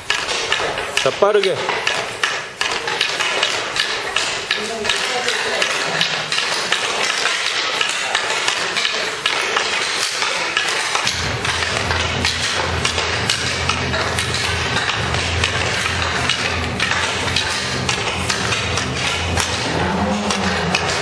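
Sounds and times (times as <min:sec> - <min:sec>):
pucks and sticks clattering: 0:00.0 - 0:21.0
low hum: 0:11.0 - 0:21.0.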